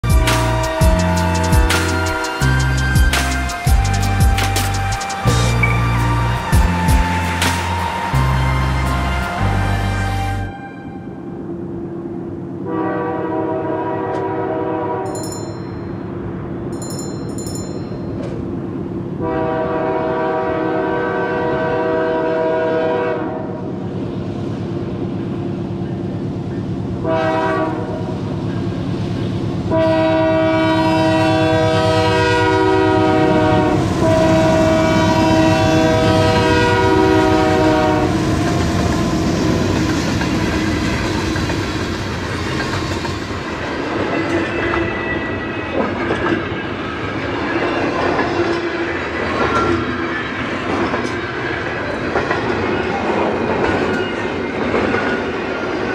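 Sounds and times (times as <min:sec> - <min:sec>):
train air horn blasts: 0:00.0 - 0:11.3, 0:12.6 - 0:15.2, 0:19.2 - 0:23.6, 0:27.0 - 0:28.1, 0:29.7 - 0:38.4.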